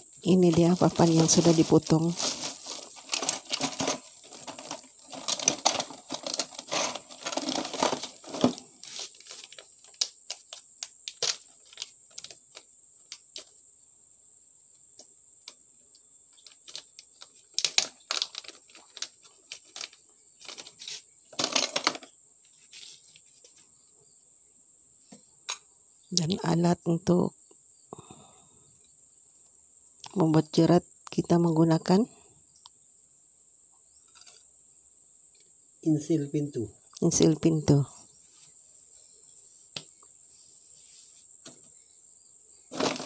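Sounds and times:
crickets trilling: 0.0s - 43.0s.

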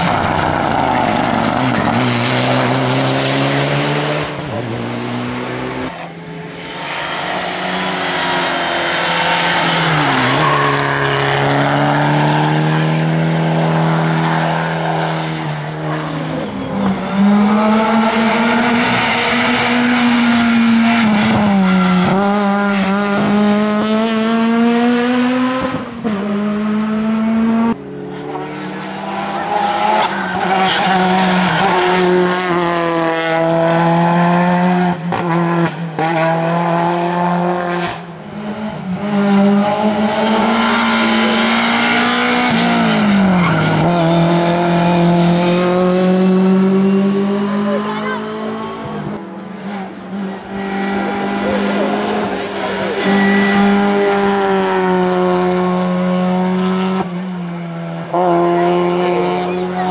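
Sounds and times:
race car engines revving: 0.0s - 59.9s.

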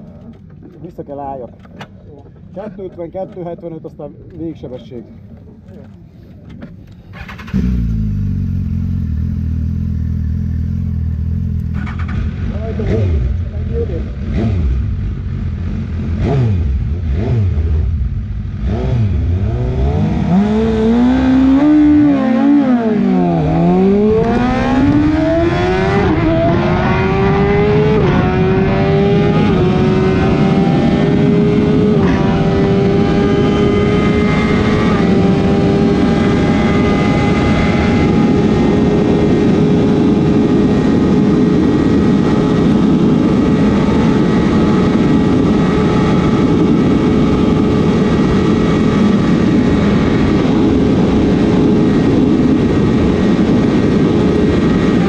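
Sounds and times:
motorcycle engine at full throttle: 7.2s - 55.0s
wind noise: 19.0s - 55.0s.

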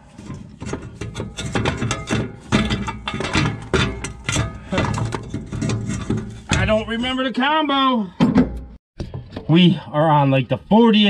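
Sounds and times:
metal starter knocking and scraping: 0.0s - 7.3s.

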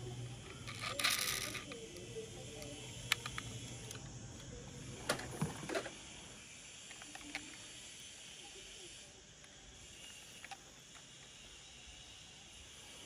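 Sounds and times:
toys clicking on tabletop: 0.3s - 4.1s, 6.8s - 7.8s.

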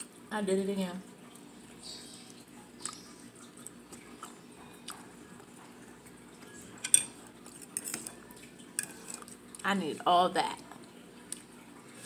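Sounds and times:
eating clicks and smacks: 2.8s - 5.2s
fork clinking against plate: 6.8s - 8.1s.

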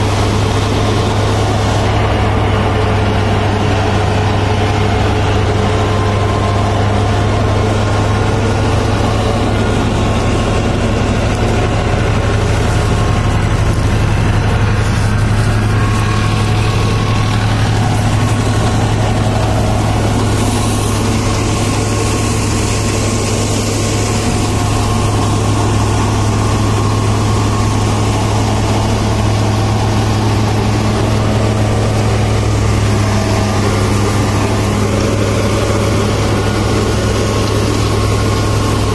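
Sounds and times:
tractor engine running: 0.0s - 38.9s.

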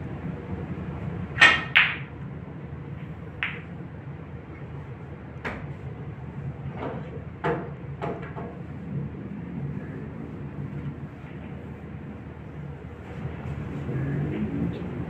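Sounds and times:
snooker balls clicking: 1.4s - 2.1s, 3.4s - 3.7s.

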